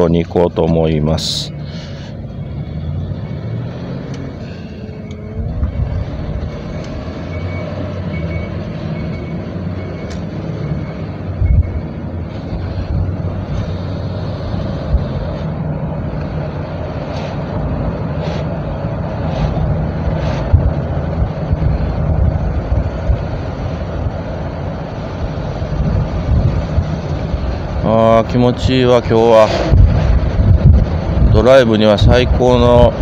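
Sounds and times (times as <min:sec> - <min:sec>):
road noise: 0:00.0 - 0:33.0
van engine running: 0:00.0 - 0:33.0.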